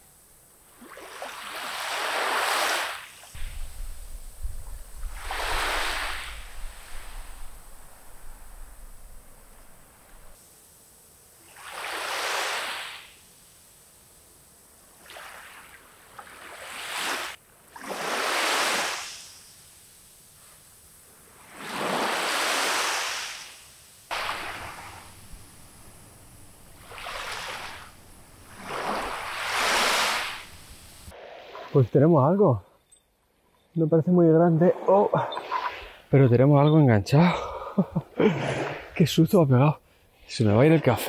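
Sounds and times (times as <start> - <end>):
small waves breaking on beach: 0.6 - 10.4, 11.4 - 13.4, 14.8 - 31.8.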